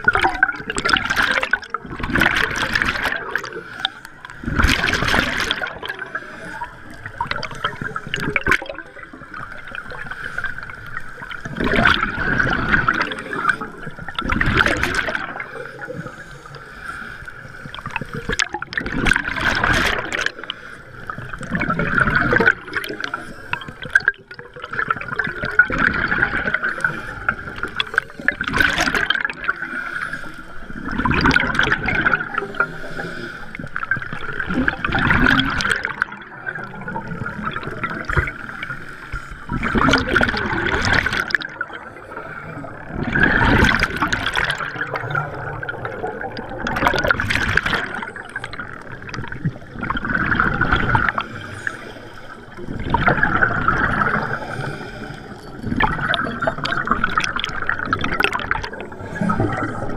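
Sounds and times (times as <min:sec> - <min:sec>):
bubbles rushing and gurgling: 0:00.0 - 0:59.9
diver breathing through regulator: 0:20.2 - 0:21.5, 0:29.6 - 0:30.8, 0:32.4 - 0:33.9, 0:51.0 - 0:52.8, 0:53.9 - 0:55.8.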